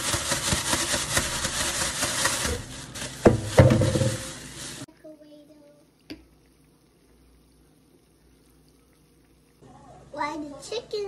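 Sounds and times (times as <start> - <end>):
plastic bag rustling: 0.0 - 4.9.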